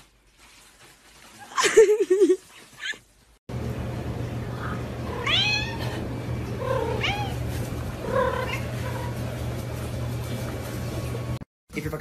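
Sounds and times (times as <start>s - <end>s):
cat meowing: 5.1s - 6.0s, 6.6s - 7.5s.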